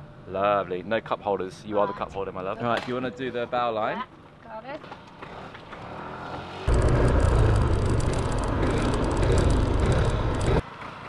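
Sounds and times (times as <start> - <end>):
motor scooter engine running: 6.7 - 10.6.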